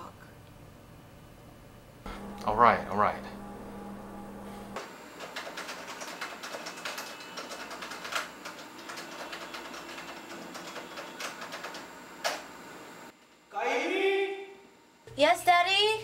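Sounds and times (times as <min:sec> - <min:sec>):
rapid clicking and tapping: 0:05.1 - 0:12.5.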